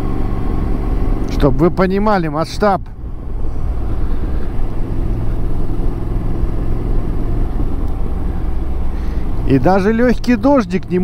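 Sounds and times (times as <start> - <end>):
motorcycle engine running: 0.0 - 11.0
road noise: 0.0 - 11.0.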